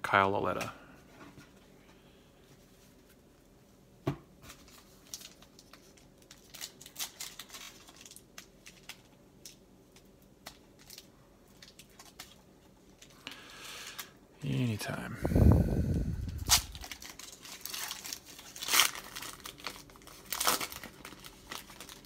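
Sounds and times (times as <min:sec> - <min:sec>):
foil wrapper crinkling and tearing: 0:04.5 - 0:14.2, 0:16.2 - 0:22.0.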